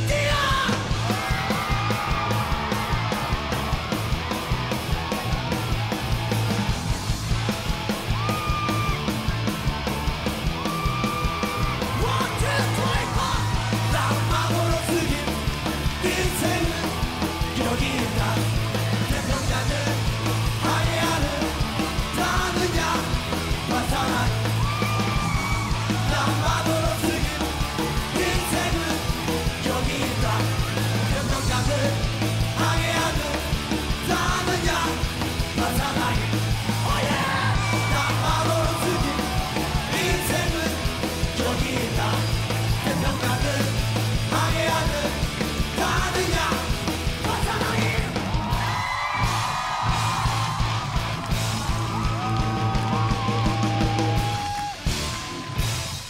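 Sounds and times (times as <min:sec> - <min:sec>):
singer shouting and singing: 0:00.0 - 0:02.8, 0:10.7 - 0:48.8
punk rock band playing: 0:00.0 - 0:56.0.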